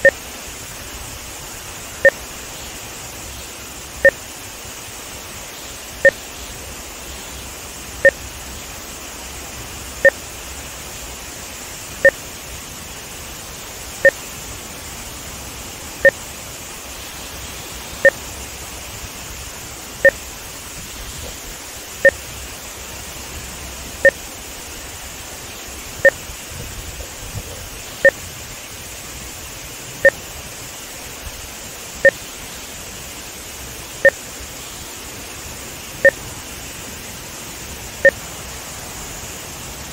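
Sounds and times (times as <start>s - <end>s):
short electronic beeps: 0.0s - 0.2s, 2.0s - 2.2s
water rushing from spillway: 0.0s - 39.9s.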